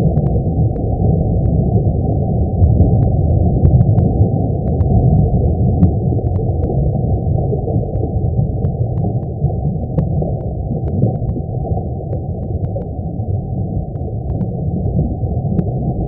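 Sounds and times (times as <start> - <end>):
deep steady rumble: 0.0 - 16.0
faint scattered clicks: 0.1 - 1.6, 3.0 - 5.0, 5.8 - 6.8, 7.8 - 13.0, 13.9 - 15.8.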